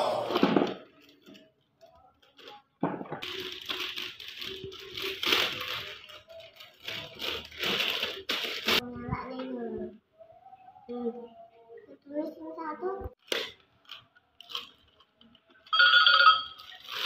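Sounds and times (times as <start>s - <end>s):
plastic bag crinkling: 0.6s - 8.8s, 13.2s - 17.0s.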